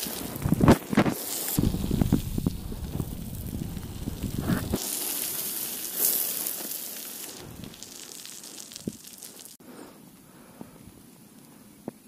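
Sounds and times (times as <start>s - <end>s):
wind rumbling on microphone: 0.0s - 4.8s, 7.4s - 7.8s.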